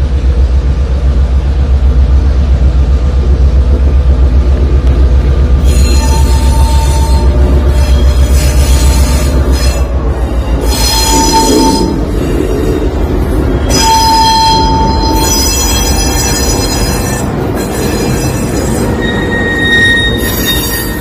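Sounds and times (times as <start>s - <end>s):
diesel locomotive engine rumbling: 0.0s - 21.0s
wheels squealing on rail: 5.5s - 21.0s.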